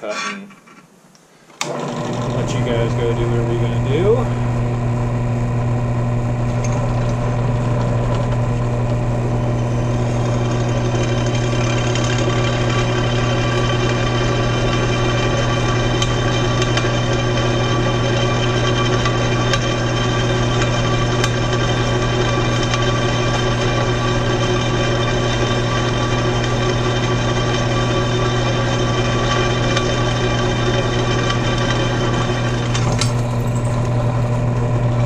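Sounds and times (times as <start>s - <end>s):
drill press motor humming: 1.5s - 35.0s
drill bit cutting metal: 1.6s - 34.3s.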